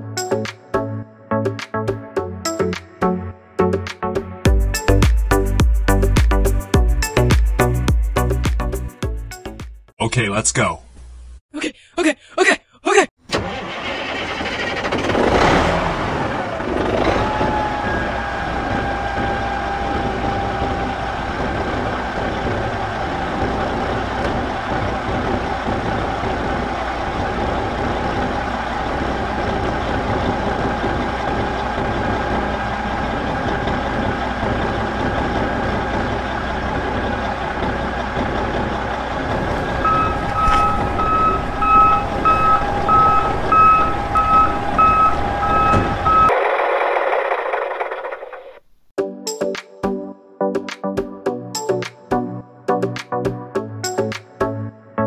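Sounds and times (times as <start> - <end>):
reversing alarm beeping: 39.4 - 46.4.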